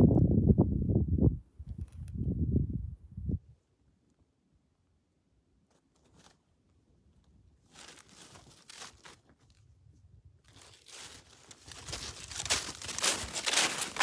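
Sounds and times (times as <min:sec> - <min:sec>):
rustling and crunching: 0:05.7 - 0:14.0.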